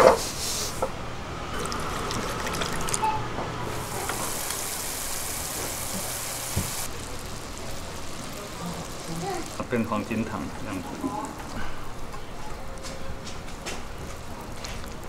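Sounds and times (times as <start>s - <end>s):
sugar syrup bubbling hiss: 1.5s - 3.0s, 3.7s - 15.0s
liquid pouring into a pan: 1.6s - 3.0s, 3.7s - 12.6s.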